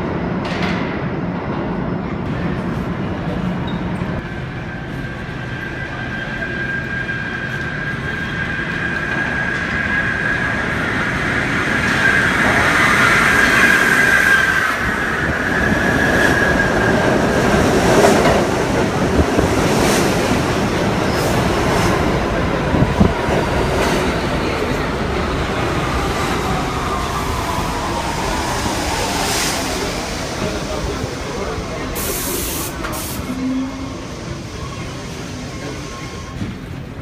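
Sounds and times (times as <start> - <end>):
subway cars rumbling: 0.0 - 37.0
high wheel squeal: 30.4 - 36.6.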